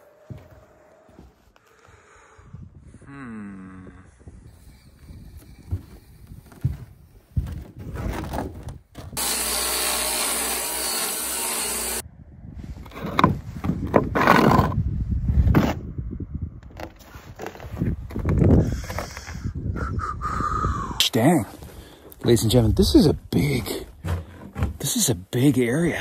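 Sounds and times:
handsaw cutting plywood: 9.2s - 12.0s.

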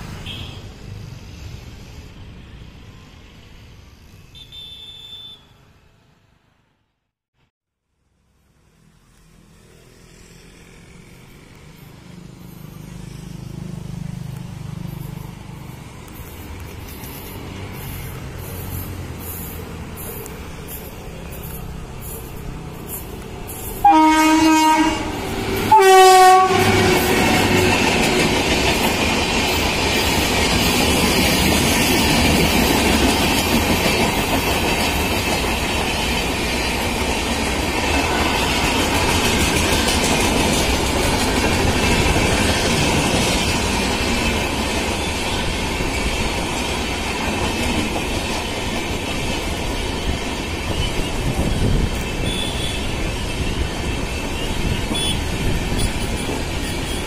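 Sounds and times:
train coaches rumbling past: 0.0s - 6.6s, 8.3s - 57.0s
locomotive horn blast: 4.3s - 5.6s, 23.8s - 27.8s, 52.0s - 53.0s, 55.0s - 57.0s.

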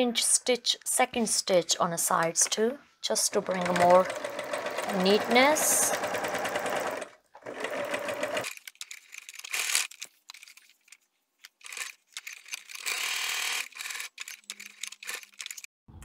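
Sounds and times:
sewing machine running: 3.4s - 8.5s, 12.7s - 15.2s
small clicks: 8.4s - 16.0s.

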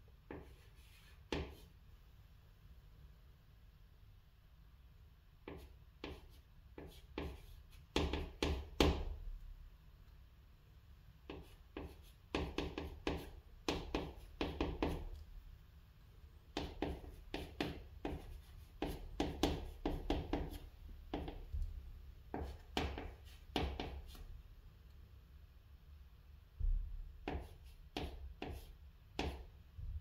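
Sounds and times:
chalk tapping on chalkboard: 0.3s - 1.7s, 5.4s - 9.2s, 11.2s - 15.2s, 16.5s - 21.6s, 22.3s - 24.2s, 27.2s - 29.5s
chalk scratching on chalkboard: 0.3s - 1.8s, 5.5s - 8.7s, 11.3s - 15.2s, 16.5s - 21.4s, 22.3s - 24.3s, 27.2s - 29.5s.

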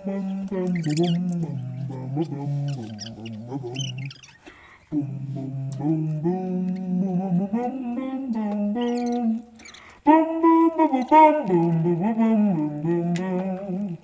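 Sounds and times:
person humming a tune: 0.0s - 14.0s.

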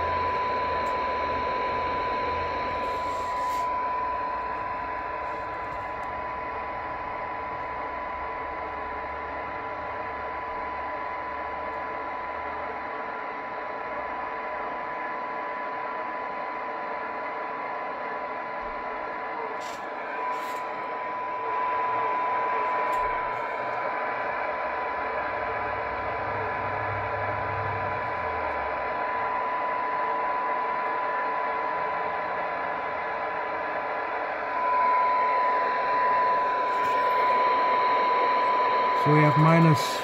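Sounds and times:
receiver hiss: 0.0s - 6.3s, 34.6s - 40.0s
steady radio test tone: 0.0s - 15.7s, 18.9s - 40.0s
low hum: 20.0s - 40.0s.

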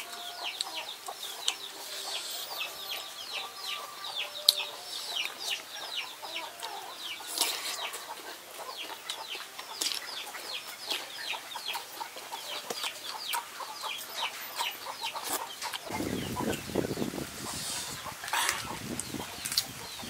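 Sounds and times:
chicks peeping: 0.0s - 20.0s
rustle: 4.5s - 20.0s.

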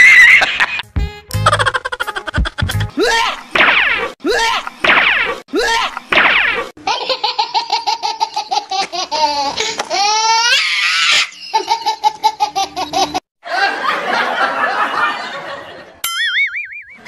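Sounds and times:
rapid high-pitched laughter: 1.4s - 3.4s, 6.8s - 15.3s.

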